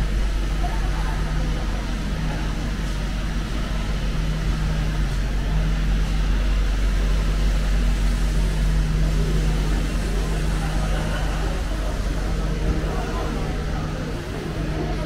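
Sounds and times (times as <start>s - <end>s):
low hum: 0.0s - 15.0s
traffic noise: 0.0s - 15.0s.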